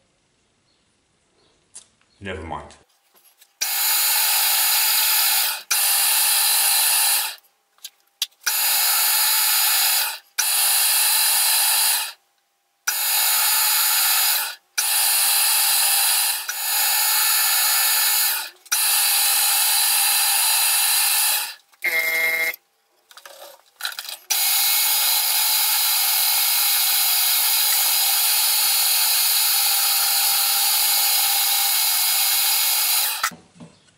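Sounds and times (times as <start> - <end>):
metal lathe running: 23.9 - 33.3.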